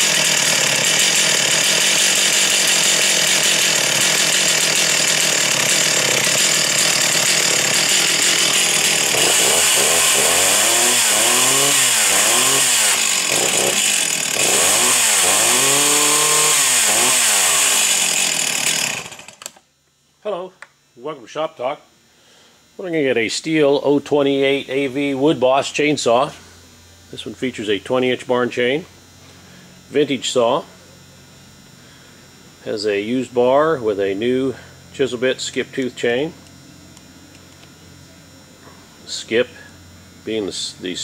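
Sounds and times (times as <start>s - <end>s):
chainsaw engine revving: 0.0s - 19.6s.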